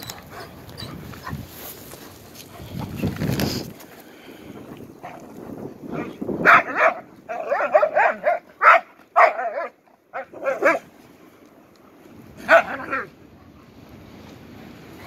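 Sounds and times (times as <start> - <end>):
dogs barking in play: 5.0 - 11.0, 12.3 - 13.8.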